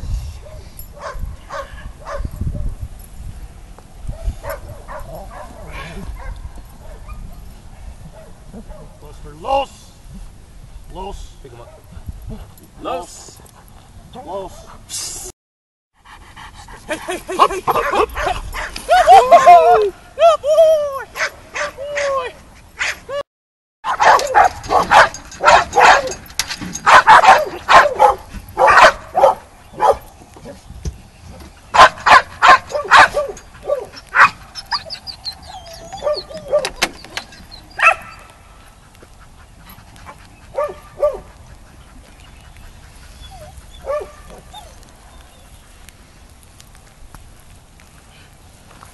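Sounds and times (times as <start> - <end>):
dog barking: 0.5 - 2.3, 4.1 - 7.2, 21.2 - 22.1, 22.8 - 23.0, 23.8 - 26.2, 26.8 - 30.0, 31.8 - 34.4, 36.0 - 36.8, 37.8 - 38.3, 40.5 - 41.3, 43.8 - 44.5.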